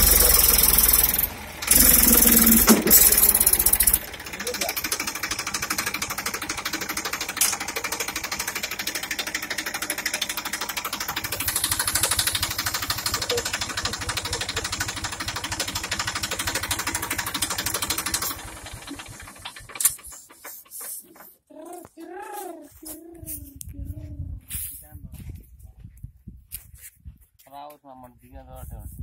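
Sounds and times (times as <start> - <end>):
tractor diesel engine running: 0.0 - 21.5.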